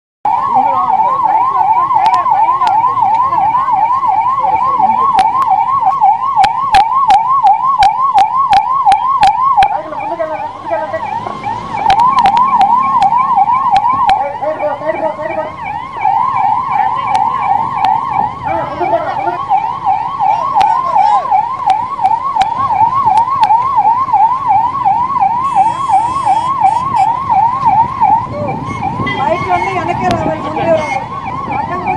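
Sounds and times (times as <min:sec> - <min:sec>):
ambulance siren yelping: 0:00.3 - 0:31.9.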